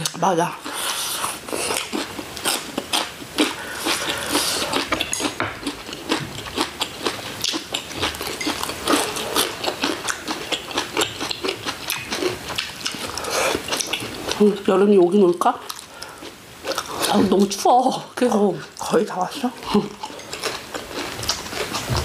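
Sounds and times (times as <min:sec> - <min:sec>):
chewing with clicks: 0:04.8 - 0:14.4, 0:19.7 - 0:22.0.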